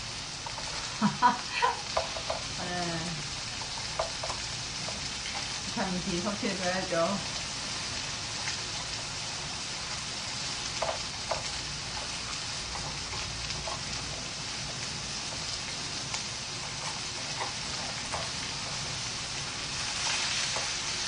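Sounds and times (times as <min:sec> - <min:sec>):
meat sizzling in frying pan: 0:00.0 - 0:21.0
chopsticks ticking on pan: 0:01.8 - 0:02.6, 0:03.5 - 0:05.6, 0:10.8 - 0:14.0.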